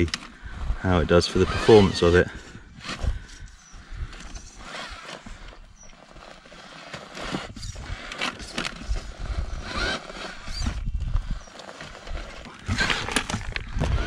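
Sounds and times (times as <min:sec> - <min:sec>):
electric motor whining: 0:00.9 - 0:14.0
tyres knocking and scraping on stones: 0:11.5 - 0:14.0.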